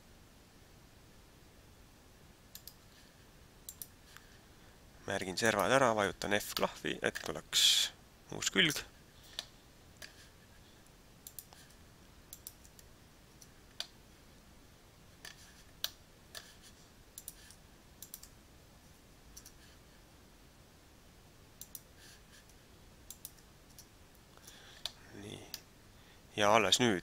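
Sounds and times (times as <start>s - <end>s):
mouse clicks: 2.5s - 2.8s, 3.7s - 4.3s, 11.2s - 14.0s, 17.2s - 18.4s, 21.6s - 21.9s, 23.1s - 25.6s.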